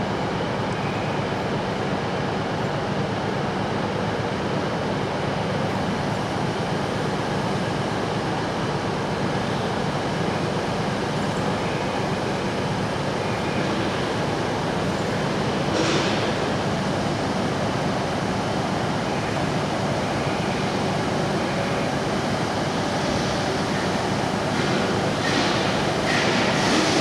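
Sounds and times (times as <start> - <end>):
steam locomotive hiss and rumble: 22.7 - 27.0.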